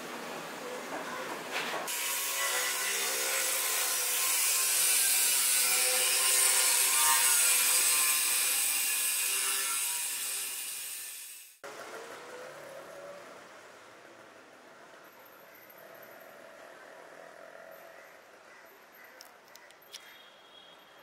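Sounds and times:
angle grinder cutting steel: 0:01.9 - 0:11.6.

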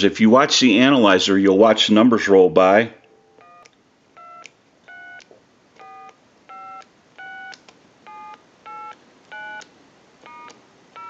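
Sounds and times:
touch-tone keypad beeps: 0:03.4 - 0:05.2, 0:05.8 - 0:09.6, 0:10.2 - 0:11.0.

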